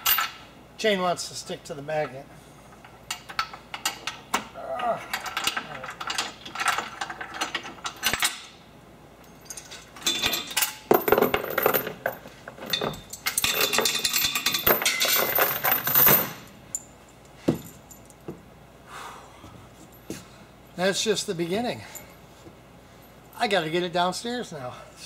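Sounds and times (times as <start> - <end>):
steel chain rattling: 9.3 - 16.8.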